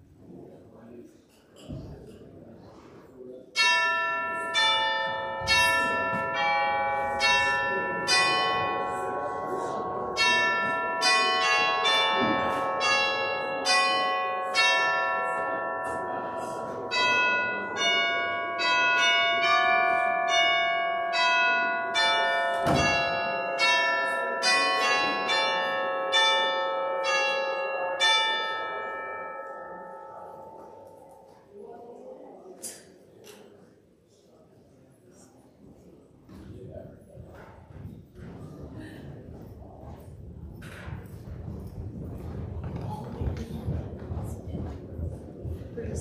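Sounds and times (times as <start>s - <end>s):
church bells ringing: 3.6s - 31.4s.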